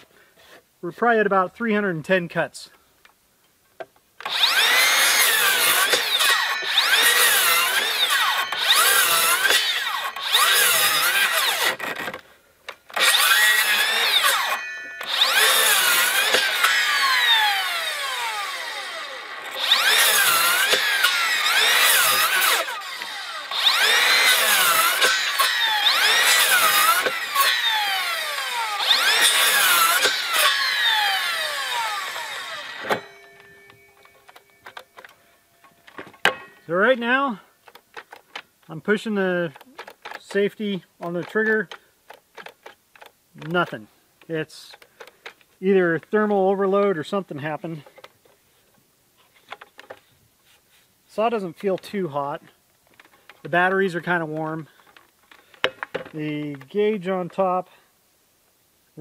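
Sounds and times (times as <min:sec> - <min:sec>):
circular saw cutting wood: 0:04.2 - 0:12.2, 0:12.9 - 0:35.2
saw blade coasting down: 0:04.2 - 0:37.8.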